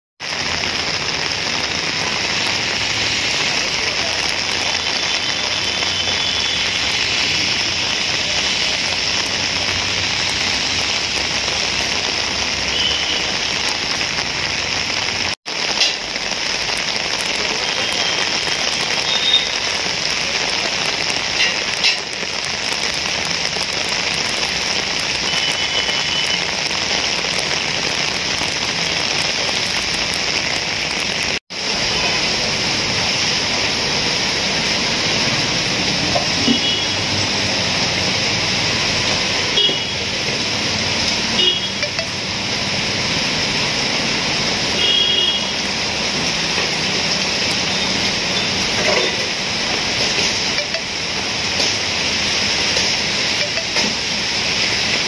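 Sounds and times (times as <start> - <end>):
heavy rain: 0.2 - 55.0.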